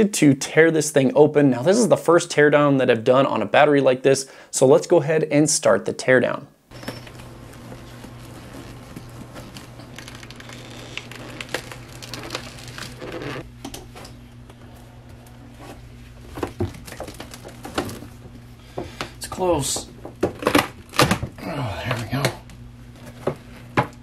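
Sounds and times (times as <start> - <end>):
low steady hum: 0.2 - 3.8, 6.0 - 24.0
plastic lid creaking and cracking: 9.0 - 13.4.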